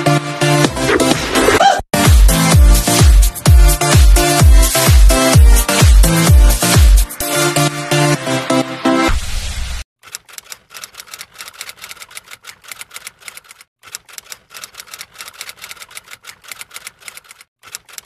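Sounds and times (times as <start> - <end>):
electronic dance music: 0.0 - 9.1
typewriter key clicks: 10.0 - 18.0.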